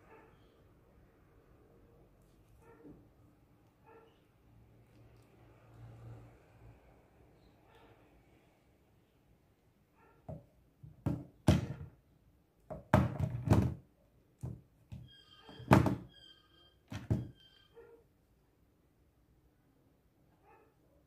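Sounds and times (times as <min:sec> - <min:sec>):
faint high tones: 0:15.0 - 0:18.1.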